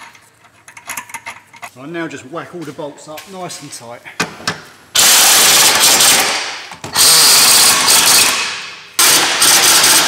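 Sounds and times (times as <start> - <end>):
impact wrench hammering bolts: 4.2 - 10.0.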